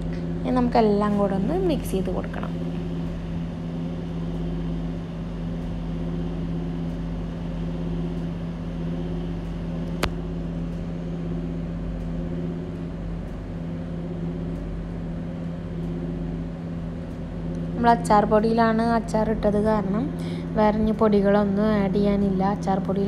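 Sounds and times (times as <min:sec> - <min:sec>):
motor hum: 0:00.0 - 0:23.0
sharp click: 0:09.4 - 0:10.8.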